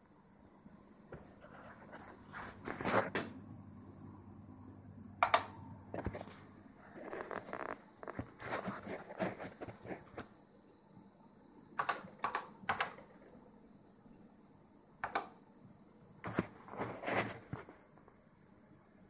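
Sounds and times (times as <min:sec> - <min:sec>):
computer keyboard typing: 0:11.8 - 0:13.3, 0:15.0 - 0:15.4.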